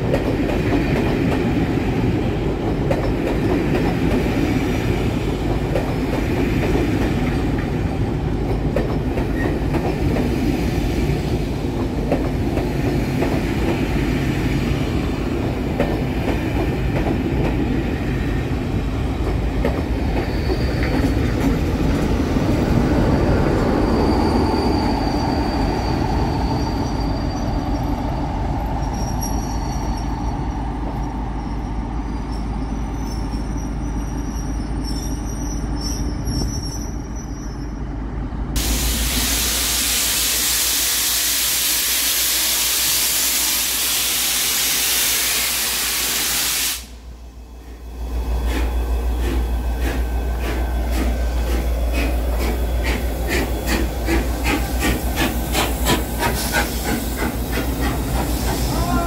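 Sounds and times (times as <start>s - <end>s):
high wheel squeals: 20.0s - 21.2s, 23.6s - 28.1s, 28.7s - 38.0s.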